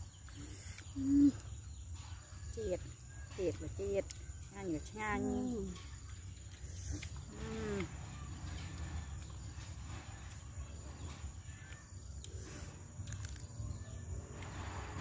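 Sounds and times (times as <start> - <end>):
insects droning: 0.0 - 15.0
person humming: 7.3 - 7.9
chewing and smacking: 8.4 - 13.8.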